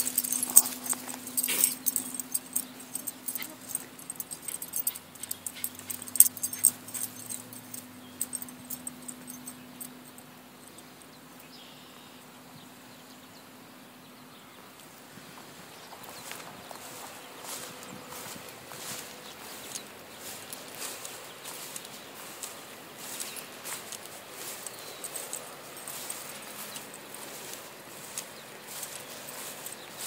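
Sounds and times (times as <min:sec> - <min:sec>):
high-pitched clicks and jingles: 0:00.0 - 0:10.9, 0:18.8 - 0:30.0
steady low hum: 0:00.0 - 0:11.2
dog running through long grass: 0:16.8 - 0:30.0.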